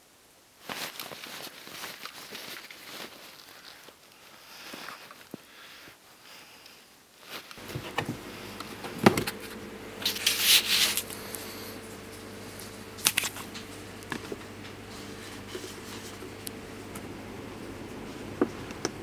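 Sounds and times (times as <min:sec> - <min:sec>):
paper rustling: 0:00.6 - 0:05.7, 0:07.2 - 0:17.0
steady low hum: 0:07.6 - 0:19.0.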